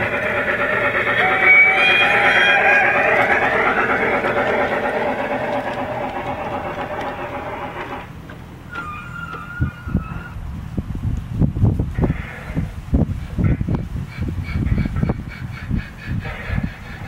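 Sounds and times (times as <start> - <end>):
gliding whine: 0.0 - 8.1
model train wheels rattling: 0.0 - 8.9
faint wavering high tone: 1.2 - 3.4.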